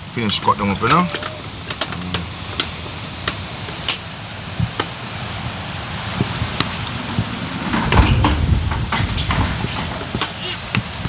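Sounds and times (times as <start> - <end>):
rain falling: 0.0 - 11.0.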